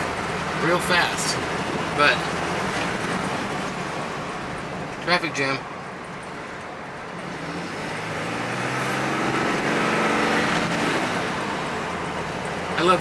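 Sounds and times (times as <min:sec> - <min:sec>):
diesel engine accelerating: 0:00.0 - 0:13.0.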